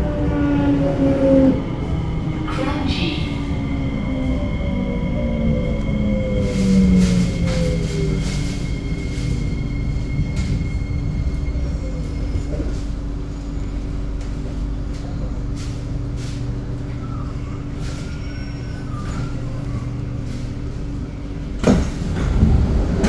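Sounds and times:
train wheels rumbling on track: 0.0 - 23.0
faint squeal from wheels: 15.0 - 20.7.

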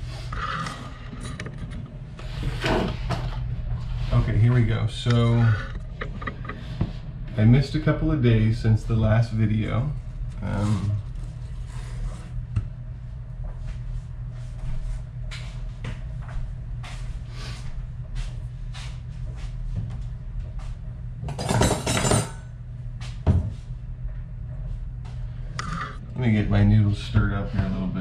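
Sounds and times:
steady low hum: 0.0 - 28.0
items clattering in cupboard: 21.2 - 22.4.

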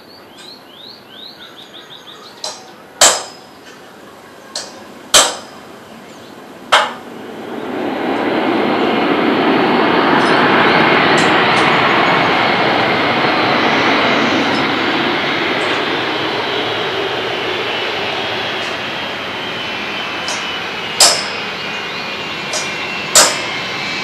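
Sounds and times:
landing jet engine noise: 0.0 - 24.0
sharp ringing bangs: 2.4 - 3.6, 4.6 - 5.7, 6.7 - 7.1, 20.2 - 21.6, 22.5 - 23.6.

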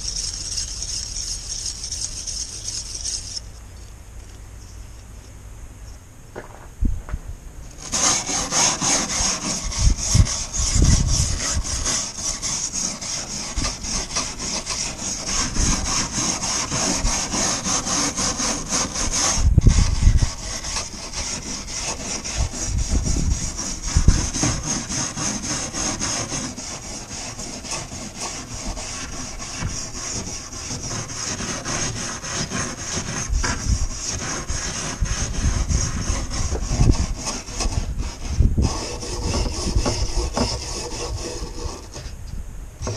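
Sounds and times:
brush scrubbing wooden frame: 0.0 - 3.4, 7.8 - 42.2
brush bumping against frame: 21.4 - 42.2.

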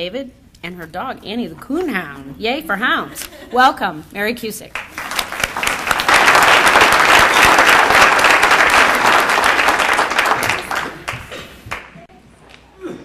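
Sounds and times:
audience applauding: 4.7 - 12.1.

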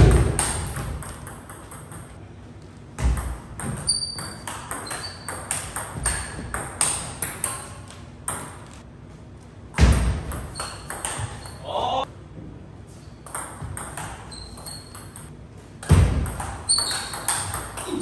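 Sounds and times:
short high squeaks: 3.9 - 5.4, 14.3 - 15.2, 16.7 - 17.4.

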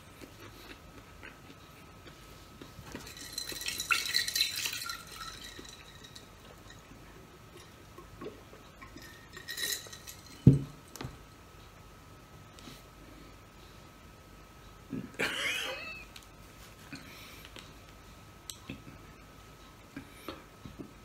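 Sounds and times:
glass clinking and ringing: 2.8 - 7.0, 8.8 - 10.8
glass set down on table thump: 10.4 - 10.7.

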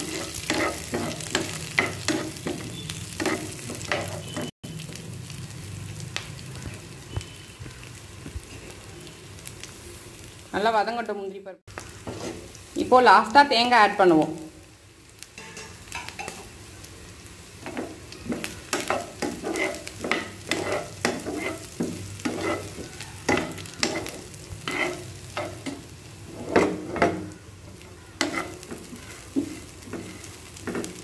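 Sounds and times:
spoon scraping a pan: 0.0 - 4.5, 12.0 - 12.6, 17.6 - 31.0
light frying sizzle: 0.0 - 31.0.

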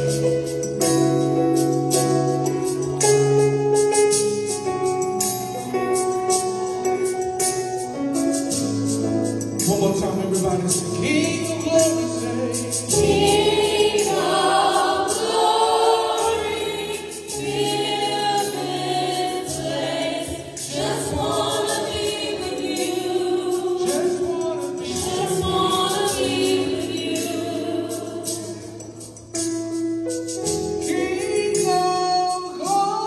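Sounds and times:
women singing gospel in harmony: 12.9 - 29.0, 30.8 - 33.0.

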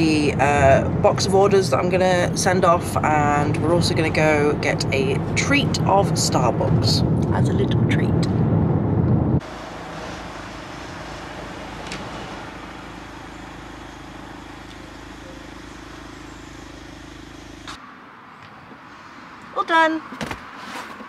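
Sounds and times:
car idling: 0.0 - 17.8.

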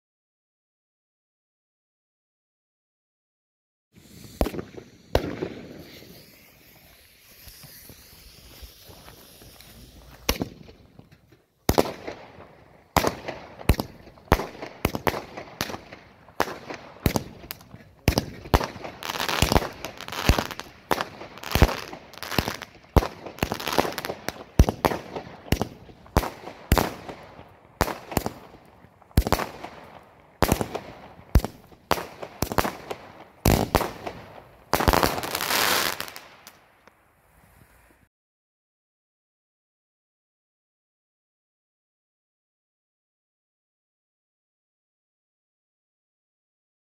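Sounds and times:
firework fuse hissing: 4.0 - 11.0, 16.4 - 38.1
firework bangs: 4.0 - 36.5.

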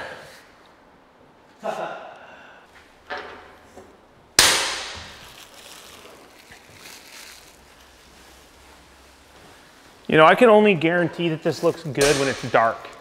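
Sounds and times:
faint footsteps: 5.0 - 12.0.

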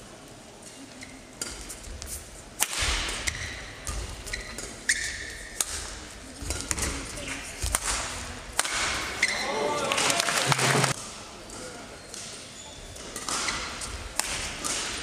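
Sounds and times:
shoes squeaking on court: 3.3 - 5.5
racket striking shuttlecock: 13.2 - 15.0.

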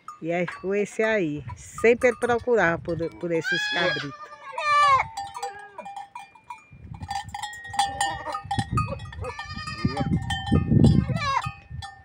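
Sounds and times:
goats bleating: 3.2 - 6.0, 7.8 - 8.4, 9.0 - 10.4, 11.0 - 11.5.

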